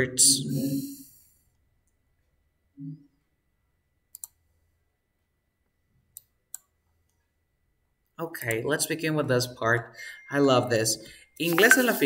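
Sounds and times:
low hum of voice: 0.0s - 1.0s
computer mouse clicking: 4.1s - 4.4s.

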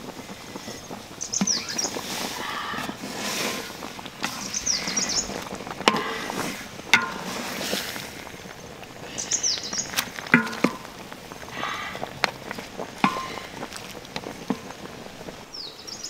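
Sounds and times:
broth boiling: 0.0s - 16.0s
small birds chirping: 0.4s - 3.0s, 3.6s - 7.3s, 8.3s - 16.0s
metal spatula scraping a pan: 2.0s - 8.4s.

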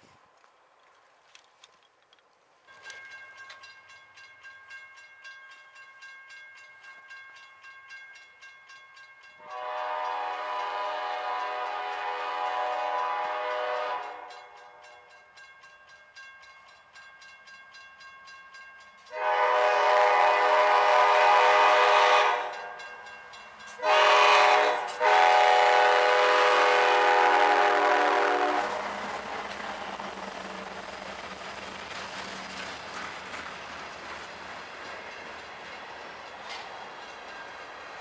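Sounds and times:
freight train rumbling past: 9.2s - 38.0s
locomotive air horn blasts: 9.4s - 14.4s, 19.1s - 22.6s, 23.8s - 29.0s.

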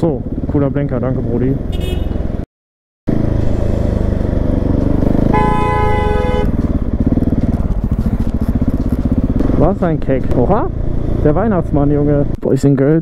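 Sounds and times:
motorcycle engine running: 0.0s - 2.4s, 3.1s - 12.4s
vehicle horn: 1.7s - 2.3s, 5.2s - 6.7s.

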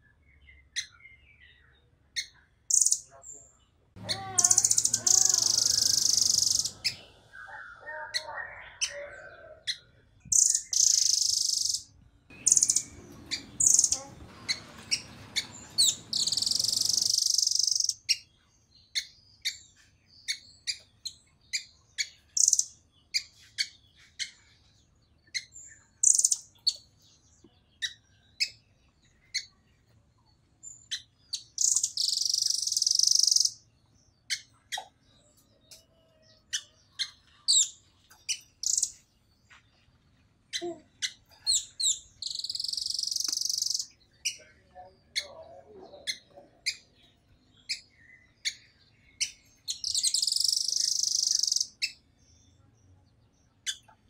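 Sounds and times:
bird sharp chips: 4.0s - 7.1s, 41.5s - 44.4s
bird trilling: 4.0s - 18.2s, 30.9s - 33.6s, 40.6s - 44.4s, 49.2s - 52.0s.

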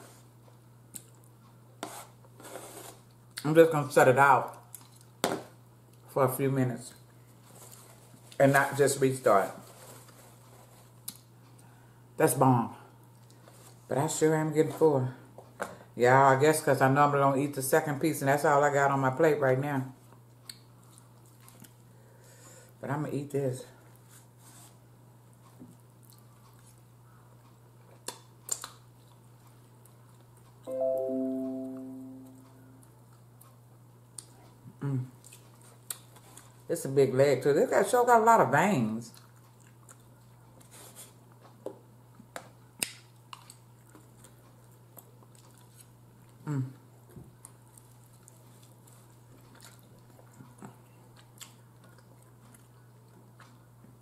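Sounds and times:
quiet eating sounds: 0.0s - 3.6s, 4.4s - 5.2s, 12.7s - 16.0s, 20.0s - 22.8s, 23.7s - 30.7s, 31.8s - 36.9s, 38.4s - 54.0s
low steady hum: 0.0s - 54.0s
chewing: 20.4s - 21.8s, 25.4s - 26.8s, 27.4s - 30.7s, 35.2s - 36.7s, 39.1s - 46.7s, 47.4s - 54.0s.

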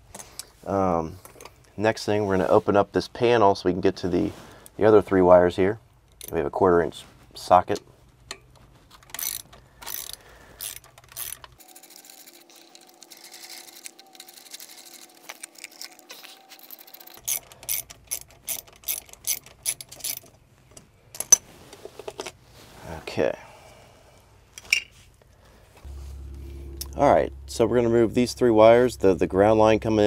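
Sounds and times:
ratchet wrench clicking: 9.1s - 15.0s, 16.7s - 20.2s.

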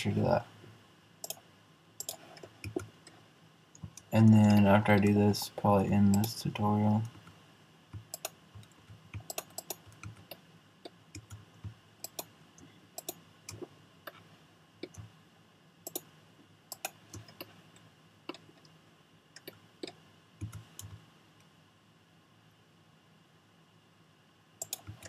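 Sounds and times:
faint steady hum: 0.0s - 25.0s
mouse and keyboard clicks: 2.0s - 2.9s, 8.0s - 12.3s, 24.6s - 25.0s.

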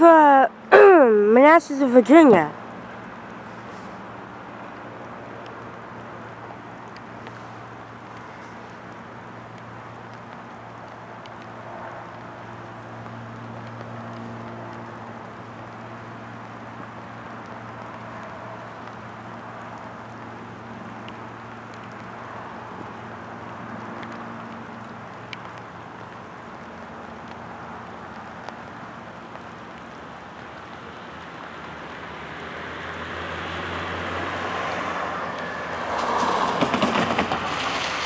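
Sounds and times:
freight train rumbling: 35.2s - 38.0s.

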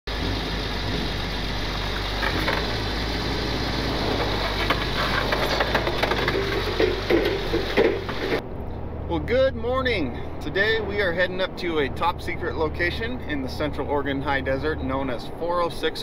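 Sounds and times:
forklift engine running: 0.1s - 8.4s
knocks and clunks: 0.3s - 8.4s.

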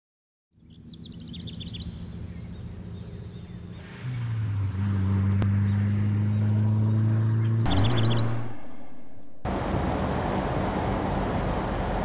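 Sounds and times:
low droning hum: 1.4s - 12.0s
high chirps: 7.5s - 9.4s
sustained low note: 7.6s - 9.6s.

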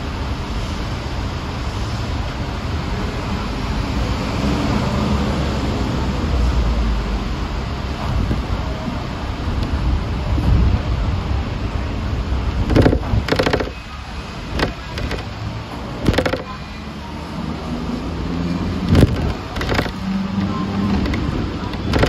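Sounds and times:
tram rumbling: 0.0s - 22.0s
knocks and rattling clatter: 12.6s - 13.8s, 14.5s - 16.6s, 18.9s - 22.0s.

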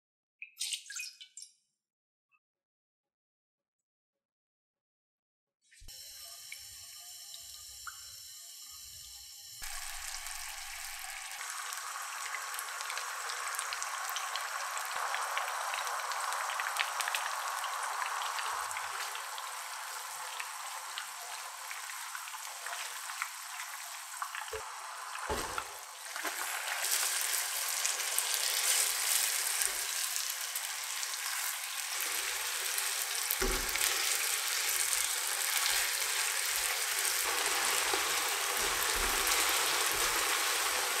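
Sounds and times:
sauce sizzling and bubbling: 9.6s - 41.0s.

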